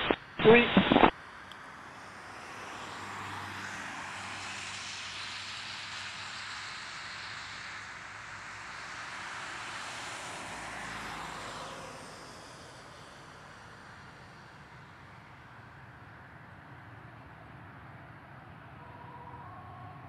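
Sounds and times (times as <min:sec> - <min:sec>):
jet engines rushing: 0:00.0 - 0:01.1.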